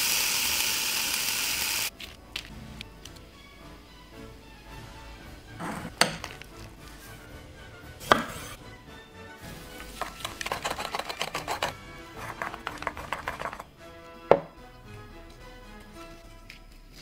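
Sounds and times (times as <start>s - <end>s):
chopsticks clicking against bowl: 10.0s - 13.6s.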